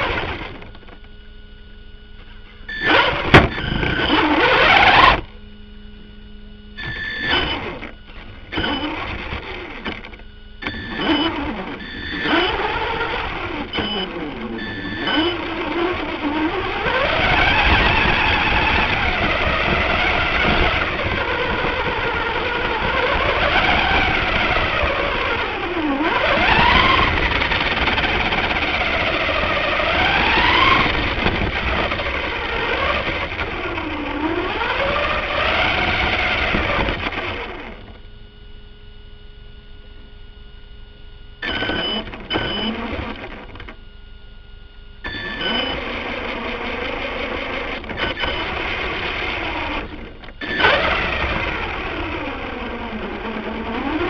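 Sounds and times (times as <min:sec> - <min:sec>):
toy car motor whining: 0:02.7 - 0:05.3, 0:06.8 - 0:08.0, 0:08.6 - 0:37.8, 0:45.1 - 0:54.0.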